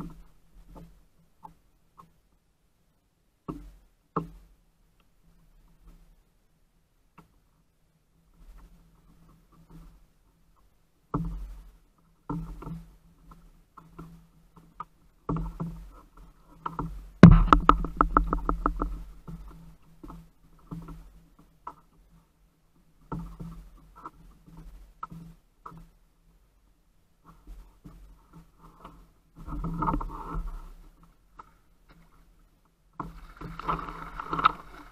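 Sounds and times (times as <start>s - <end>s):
handling knocks and bumps: 16.7s - 21.0s
sharp knock: 17.2s - 18.7s.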